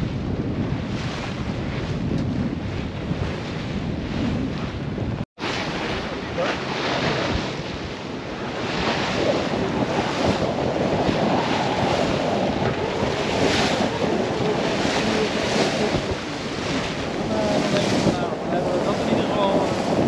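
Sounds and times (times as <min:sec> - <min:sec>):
water rushing along hull: 0:00.0 - 0:20.0
wind buffeting microphone: 0:00.0 - 0:20.0
waves surging past: 0:05.4 - 0:20.0.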